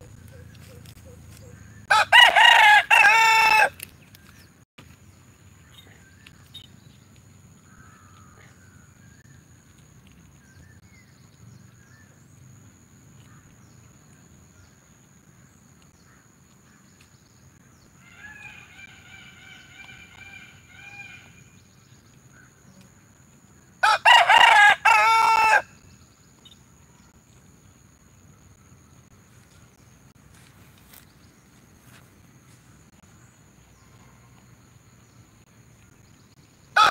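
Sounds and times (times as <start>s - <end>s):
rooster crowing: 1.8s - 3.8s, 18.0s - 21.2s, 23.8s - 25.7s.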